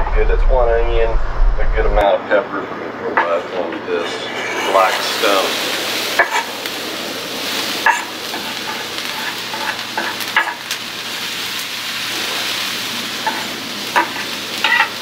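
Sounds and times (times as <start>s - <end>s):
knife scraping on steel griddle: 3.2s - 5.5s, 6.2s - 6.6s, 7.4s - 11.6s, 13.2s - 15.0s
vegetables sizzling in hot oil: 4.4s - 15.0s.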